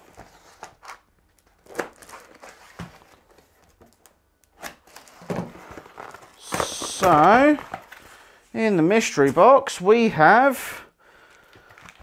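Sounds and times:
cardboard rustling: 0:00.0 - 0:08.2
tape ripping: 0:05.9 - 0:08.0.

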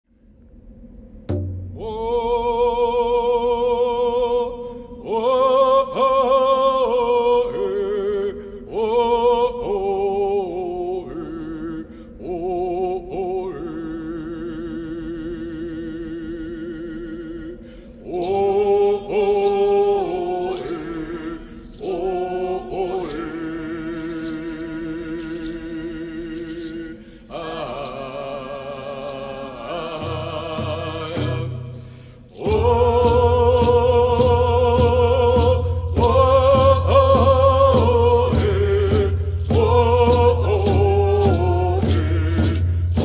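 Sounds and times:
steady low drone note: 0:01.1 - 0:05.1.

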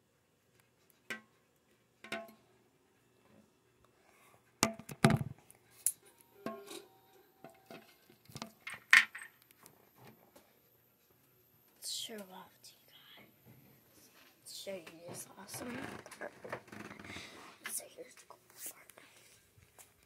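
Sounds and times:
faint high whine: 0:05.6 - 0:15.6.

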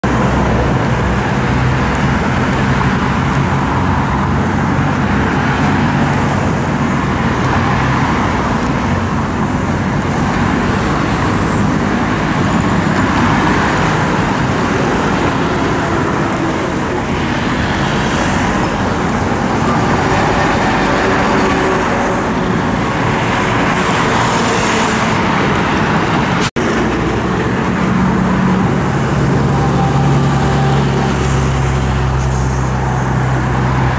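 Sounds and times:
heavy highway traffic: 0:00.0 - 0:33.9.

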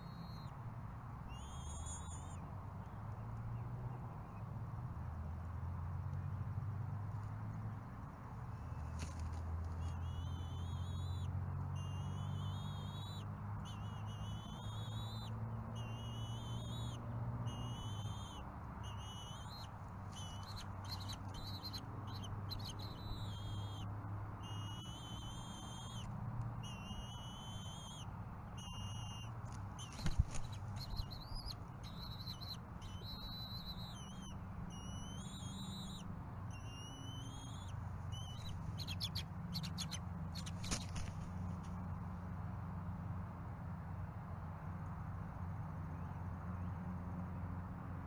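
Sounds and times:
eaglet whistled begging calls: 0:00.0 - 0:00.5, 0:01.3 - 0:02.4, 0:09.8 - 0:40.8.

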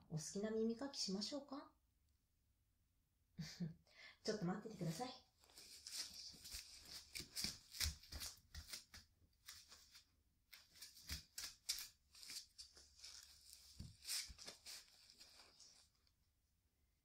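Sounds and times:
scratchy rustles: 0:05.4 - 0:16.0.

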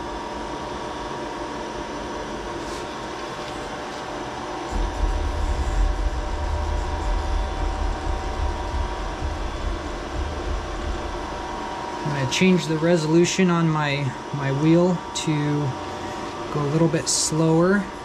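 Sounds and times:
cnc mill humming: 0:00.0 - 0:18.0
high whine: 0:02.6 - 0:18.0
deep low rumble: 0:04.7 - 0:12.2.

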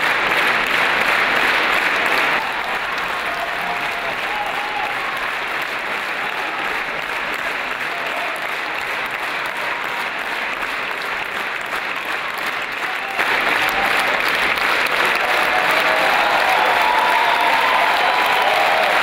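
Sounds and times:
audience applauding: 0:00.0 - 0:19.0.

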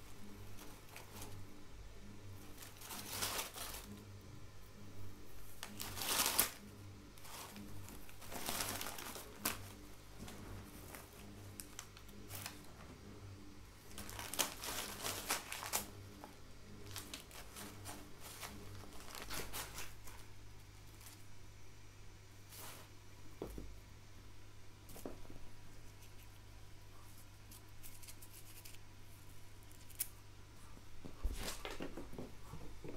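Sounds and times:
packing paper crinkling: 0:02.4 - 0:04.0, 0:05.4 - 0:12.7, 0:13.8 - 0:20.3.

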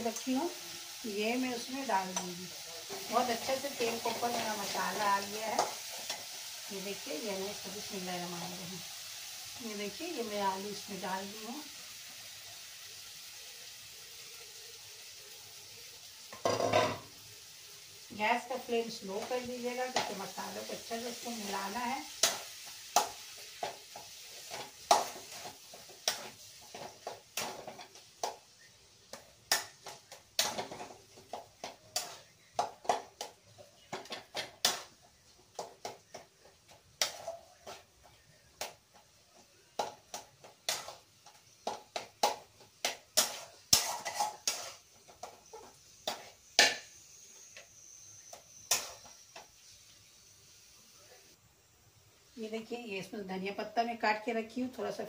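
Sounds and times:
faint sizzle: 0:00.0 - 0:55.0
spoon clacking in a wok: 0:02.0 - 0:06.3, 0:19.2 - 0:49.6.

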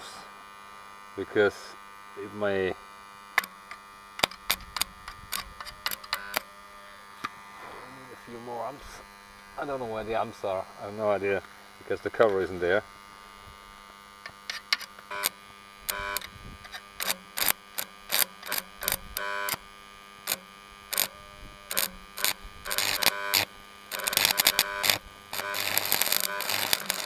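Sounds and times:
welder humming: 0:00.0 - 0:27.0
welding arc crackling: 0:01.4 - 0:27.0
electrode scratching on steel: 0:14.3 - 0:19.6, 0:20.2 - 0:27.0.

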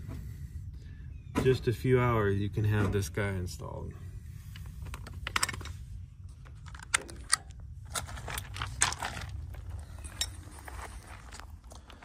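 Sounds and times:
steady low rumble: 0:00.0 - 0:12.0
footsteps on loose rocks: 0:07.7 - 0:12.0.

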